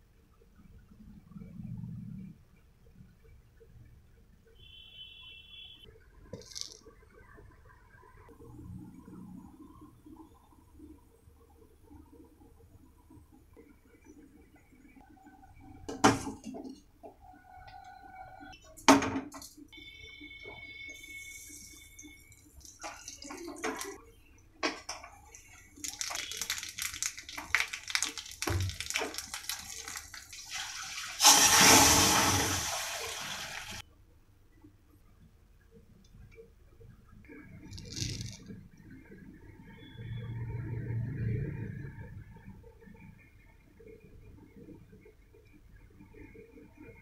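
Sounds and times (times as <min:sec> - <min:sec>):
spices crackling in hot oil: 0:19.4 - 0:33.8, 0:37.6 - 0:38.6.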